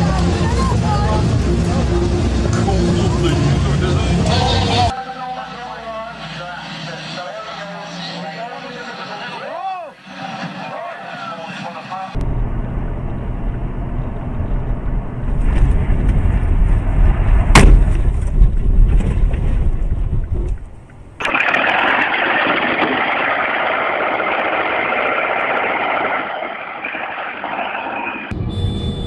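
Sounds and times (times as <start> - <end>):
heavy engine rumbling: 0.0 - 4.9
sharp bang: 17.5 - 18.5.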